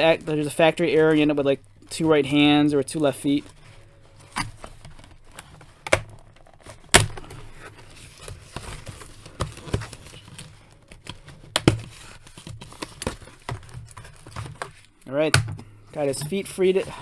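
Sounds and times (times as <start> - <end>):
handling cardboard box: 3.1 - 14.8.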